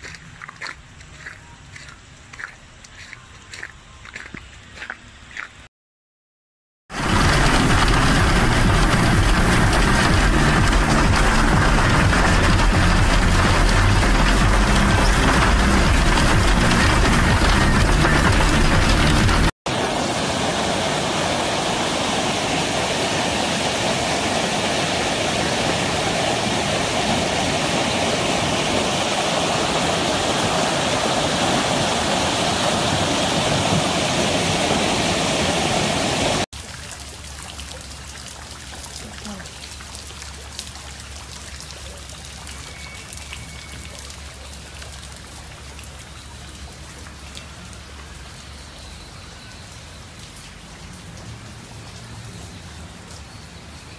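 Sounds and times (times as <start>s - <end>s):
heavy rain and hail falling: 6.9s - 46.1s.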